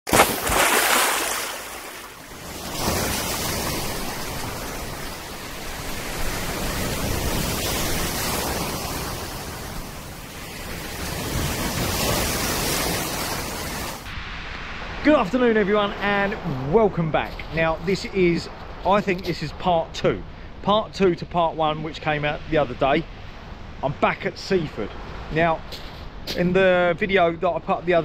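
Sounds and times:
sea waves breaking: 0.1s - 19.6s.

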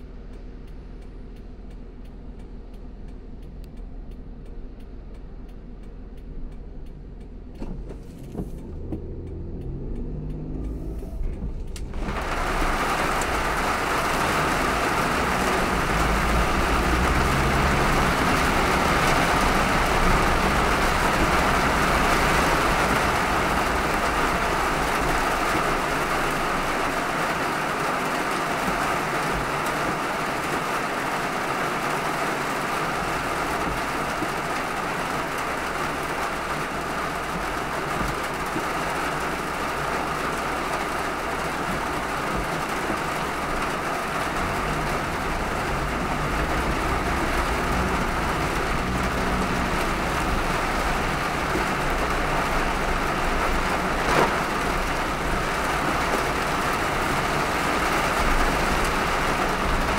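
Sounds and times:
low rumble: 0.0s - 22.0s
tyres on a wet road: 0.0s - 59.9s
heavy rain hissing: 11.9s - 59.9s.

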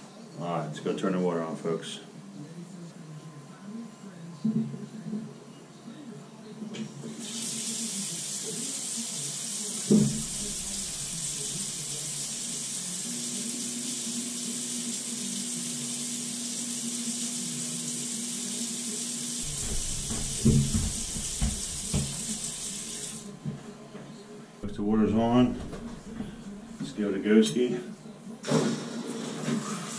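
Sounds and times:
water rushing hiss: 7.2s - 23.3s
thump: 19.4s - 22.3s
knocks: 19.4s - 22.4s.

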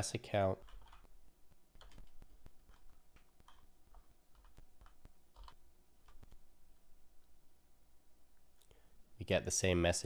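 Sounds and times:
computer keyboard keystrokes: 0.6s - 1.1s, 1.8s - 6.4s.

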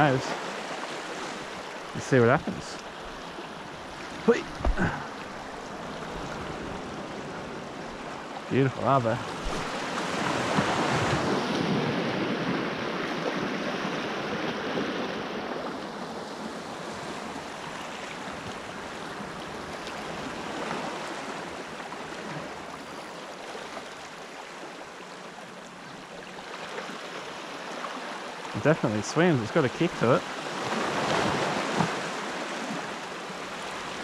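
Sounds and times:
small waves washing over rocks: 9.1s - 15.0s, 30.0s - 34.0s.

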